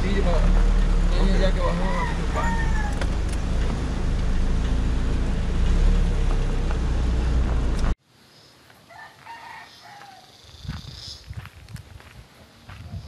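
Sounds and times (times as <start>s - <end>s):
vehicle engine and road rumble: 0.0s - 8.0s
rooster crowing faintly: 1.6s - 3.0s, 8.9s - 10.4s.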